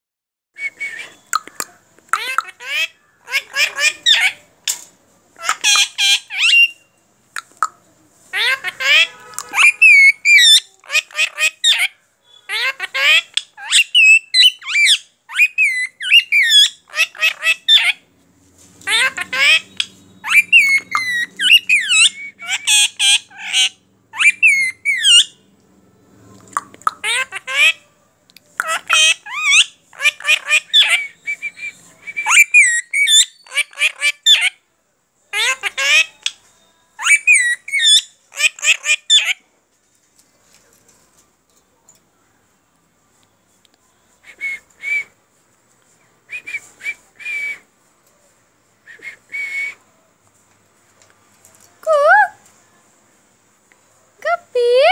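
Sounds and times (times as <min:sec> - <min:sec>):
parakeet squawking: 0:01.2 - 0:04.5, 0:05.4 - 0:06.8, 0:08.3 - 0:18.0, 0:18.8 - 0:25.4, 0:26.8 - 0:27.8, 0:28.6 - 0:31.2, 0:32.2 - 0:34.6, 0:35.3 - 0:36.4, 0:37.0 - 0:39.4.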